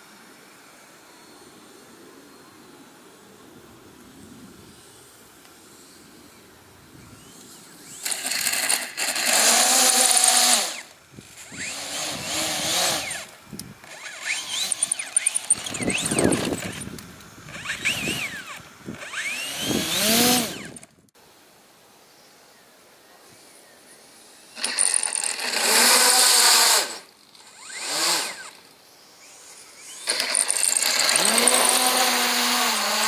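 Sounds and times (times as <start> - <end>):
electric motor and propeller whine: 3.4 - 21.1, 24.3 - 33.0.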